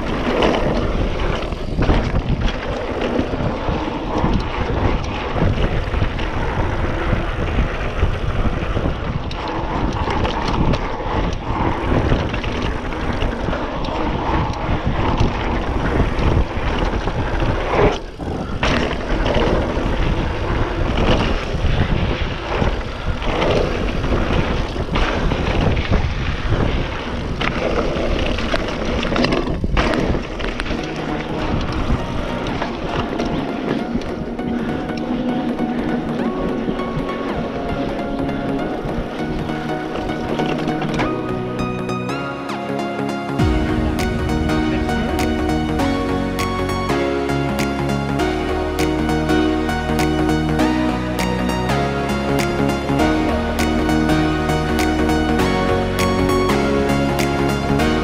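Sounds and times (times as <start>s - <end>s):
wind rushing on microphone: 0.0s - 41.1s
bike knocking and rattling: 0.0s - 41.2s.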